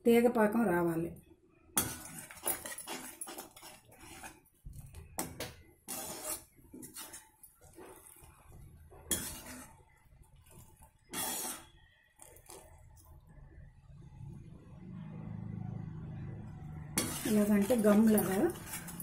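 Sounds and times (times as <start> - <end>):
metal ladle scraping metal pan: 1.8 - 4.4, 5.2 - 9.9, 10.5 - 12.8, 16.9 - 19.0
syrup boiling: 1.8 - 5.1, 5.8 - 13.6.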